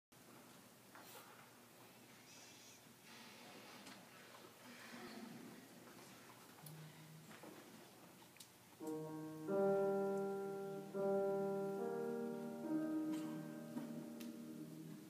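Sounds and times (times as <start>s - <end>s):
faint room noise: 0.2s - 15.0s
grand piano chords: 8.8s - 15.0s.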